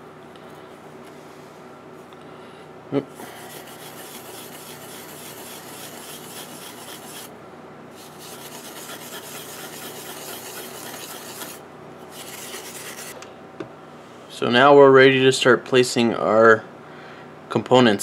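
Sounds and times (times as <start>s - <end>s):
steel wool scrubbing circuit board: 3.4s - 7.3s, 8.0s - 13.2s.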